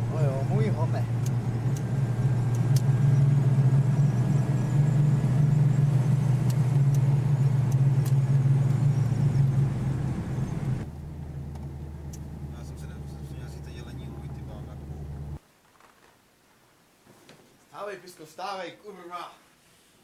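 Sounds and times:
car engine and road drone: 0.0s - 15.4s.

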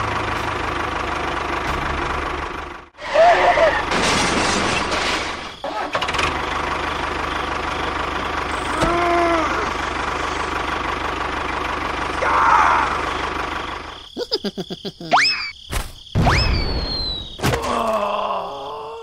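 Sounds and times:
tractor engine chugging: 0.0s - 3.9s, 5.7s - 14.2s.

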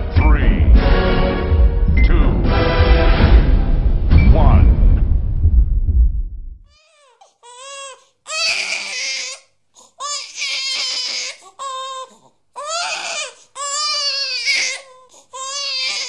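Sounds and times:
infant crying: 6.7s - 16.0s.

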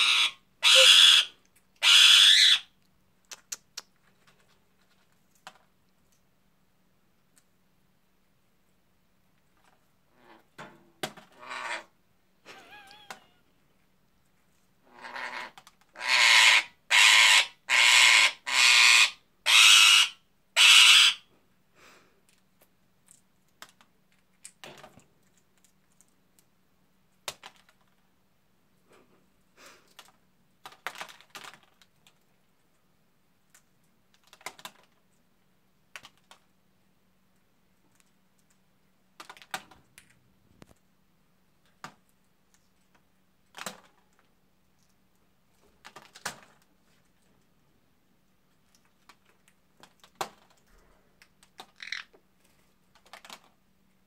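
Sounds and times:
parakeet squawking: 0.0s - 2.7s, 15.0s - 21.2s, 51.8s - 52.1s
faint steady hum: 0.0s - 30.8s, 31.6s - 54.0s.

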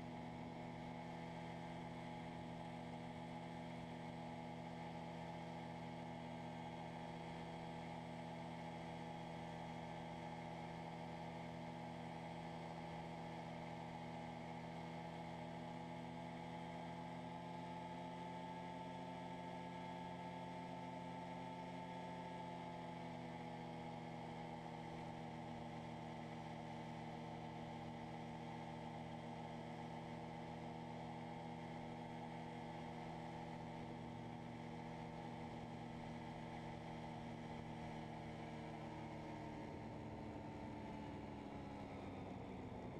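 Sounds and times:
two-stroke ultralight engine running: 0.0s - 42.9s.

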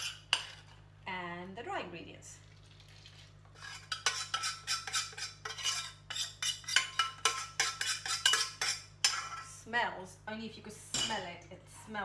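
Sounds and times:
spoon scraping metal saucepan: 0.0s - 0.8s, 3.5s - 9.5s.

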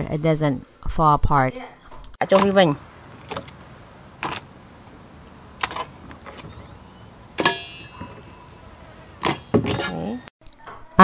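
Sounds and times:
metallic ring: 7.4s - 8.4s.

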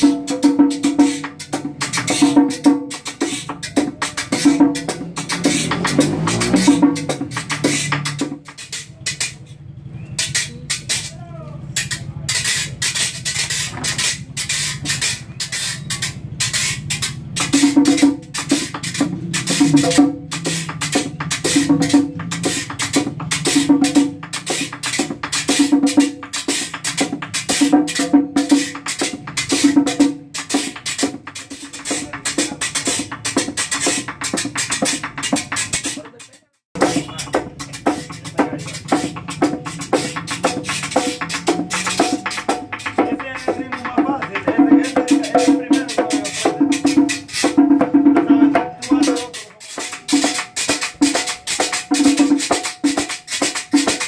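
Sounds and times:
hand drum strokes: 0.0s - 9.5s, 10.2s - 54.0s
metal guira scraping: 0.0s - 54.0s.

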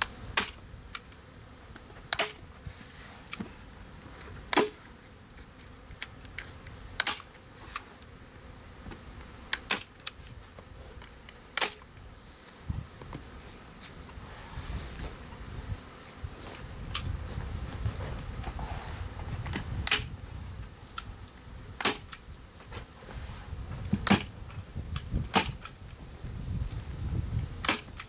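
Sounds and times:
staple gun clicks: 7.0s - 7.3s, 19.8s - 20.1s.

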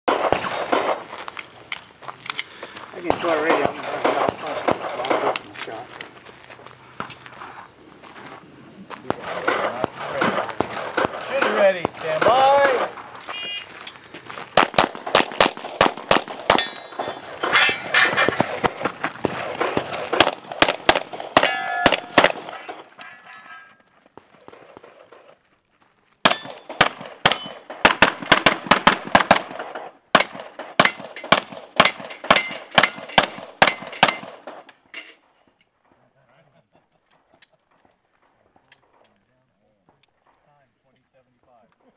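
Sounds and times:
pistol shots: 0.1s - 1.1s, 3.0s - 5.5s, 9.1s - 13.6s, 14.6s - 22.9s, 26.2s - 34.7s
steel targets clanging: 16.5s - 18.5s, 21.4s - 23.8s, 30.8s - 35.2s.

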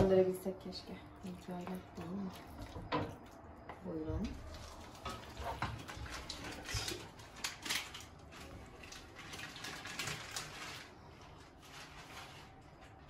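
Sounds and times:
kitchen scrapes and rustles: 4.0s - 13.0s.

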